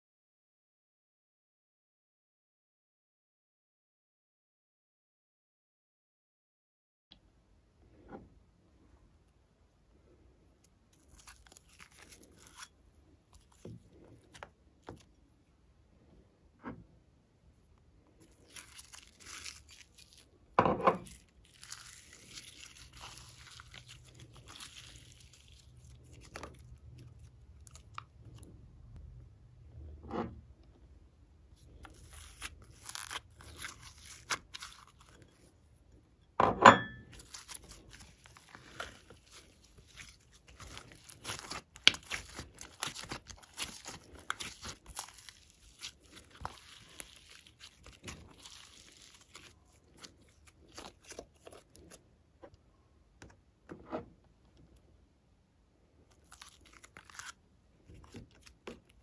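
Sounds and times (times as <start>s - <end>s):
slime crackling and popping: 18.2s - 20.3s, 21.0s - 28.3s, 31.7s - 35.3s, 37.1s - 52.0s
sticky tearing sounds: 21.0s - 28.4s, 31.7s - 35.4s, 37.2s - 52.0s, 56.1s - 59.0s.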